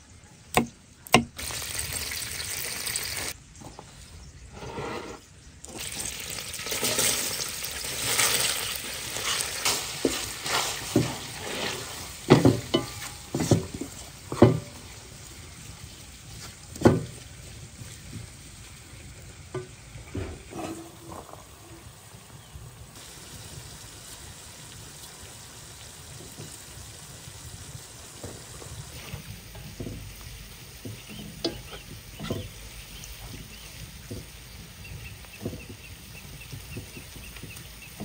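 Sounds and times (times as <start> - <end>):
onion sizzling in oil: 1.1 - 3.4, 5.7 - 38.0
spatula knocking on pan: 12.3 - 13.7, 30.9 - 32.6.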